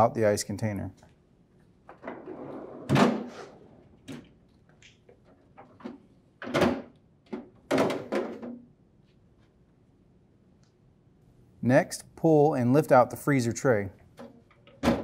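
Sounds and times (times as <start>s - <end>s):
plastic trays knocking and clattering: 5.6s - 8.6s.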